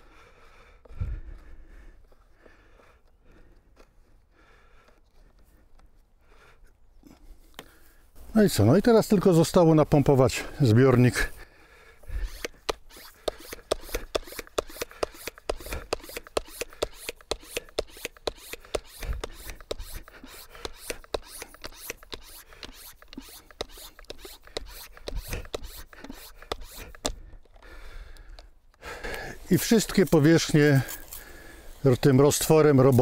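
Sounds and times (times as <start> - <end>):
rasping hand pump strokes: 12.0 - 27.7, 29.0 - 33.0.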